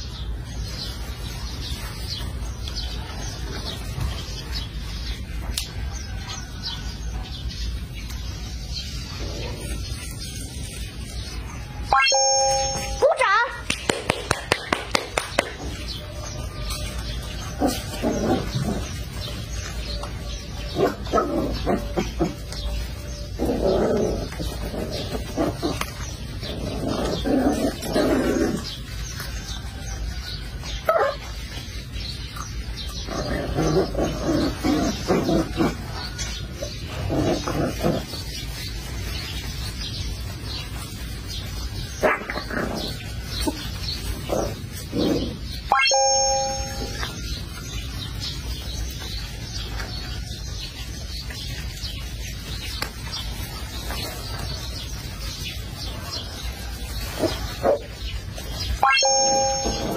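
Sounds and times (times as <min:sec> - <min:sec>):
background noise: 0:00.0 - 0:59.9
puppies yipping and growling: 0:00.0 - 0:59.9
puppy yelps: 0:30.8 - 0:31.3, 0:58.8 - 0:59.9.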